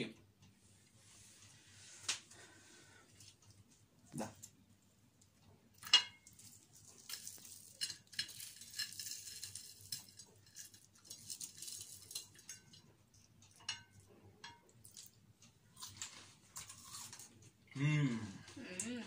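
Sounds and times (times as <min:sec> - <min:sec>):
crackles of fried food handled: 0:05.2 - 0:17.6.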